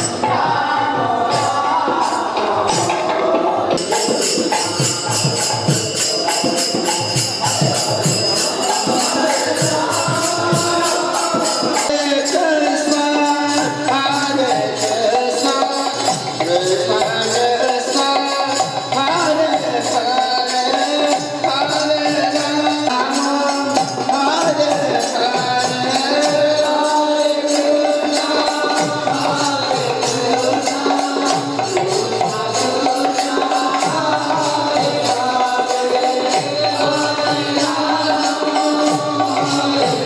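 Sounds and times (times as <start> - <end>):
drum beat: 0.0 - 17.6
devotional singing: 0.0 - 40.0
jingling cymbals: 3.7 - 40.0.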